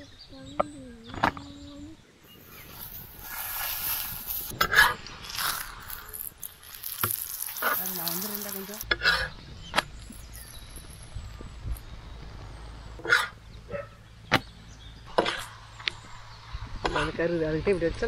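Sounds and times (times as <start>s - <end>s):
oil sizzling on hot griddle: 2.6s - 4.5s, 5.2s - 8.8s.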